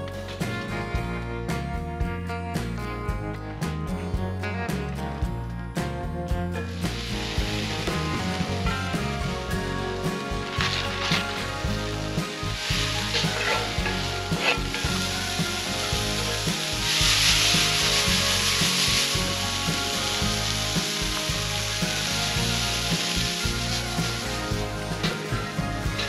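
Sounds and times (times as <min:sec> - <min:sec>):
vegetables sizzling in a skillet: 0:06.6 - 0:26.0.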